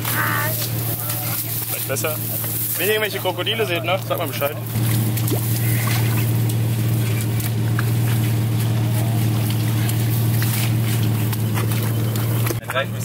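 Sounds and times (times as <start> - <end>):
engine idling: 0.0 - 13.0
shovel scraping wet mud: 4.0 - 12.8.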